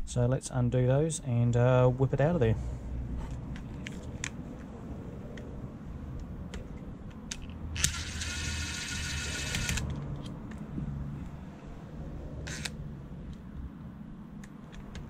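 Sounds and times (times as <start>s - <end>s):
tool handling clicks: 3.3s - 4.7s, 6.2s - 10.7s, 12.4s - 13.4s, 14.4s - 15.0s
cordless drill whirring: 7.8s - 9.9s, 12.5s - 12.8s.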